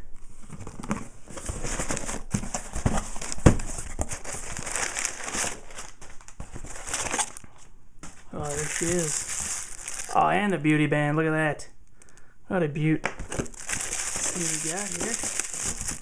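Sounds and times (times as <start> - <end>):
packing paper crinkling: 2.8 - 7.6, 8.4 - 10.2, 13.2 - 16.0.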